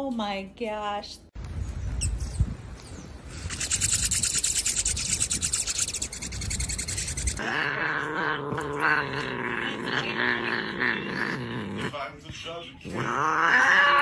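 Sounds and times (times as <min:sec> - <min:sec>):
hummingbirds chittering: 0:01.6 - 0:07.4
cat yowling: 0:13.2 - 0:14.0.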